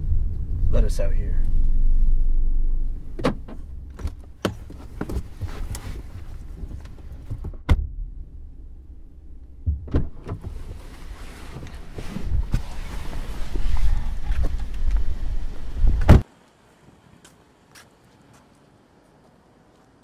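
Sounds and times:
car engine rumble: 0.0s - 16.2s
car doors opening and shutting: 2.8s - 8.0s, 9.4s - 16.2s.

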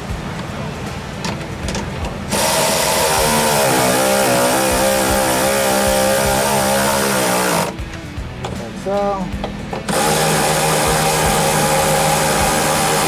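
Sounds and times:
cordless electric ratchet whining: 2.3s - 7.8s, 9.9s - 13.0s.

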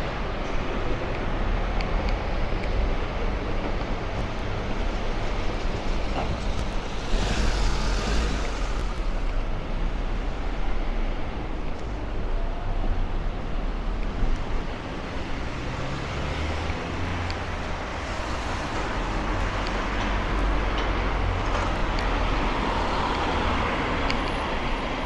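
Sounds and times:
traffic rumble: 0.0s - 25.0s
vehicle passing with tyre hiss: 6.6s - 9.4s, 17.9s - 19.6s.

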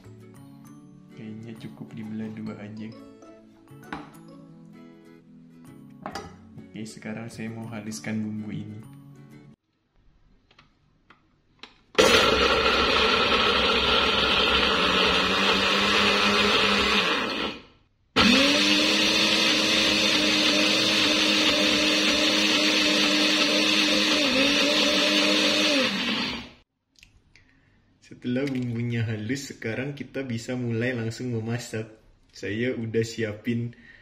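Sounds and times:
blender motor grinding: 12.0s - 26.6s.

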